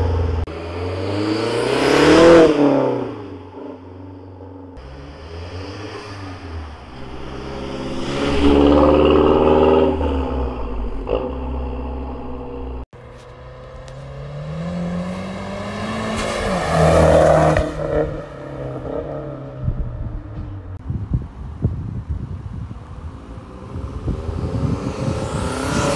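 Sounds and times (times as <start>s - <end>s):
car accelerating past: 4.8s - 19.9s, 23.5s - 25.9s.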